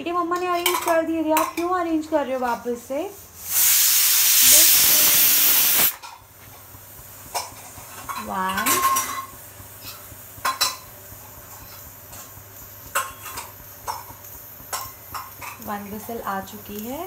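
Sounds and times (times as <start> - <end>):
pressure cooker whistling: 3.4 - 6.0.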